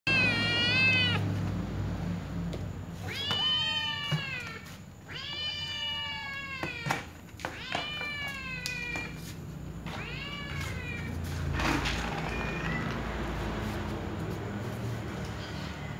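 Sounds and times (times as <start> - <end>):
cat meowing: 0.1 - 1.3, 3.0 - 13.2, 15.3 - 15.9.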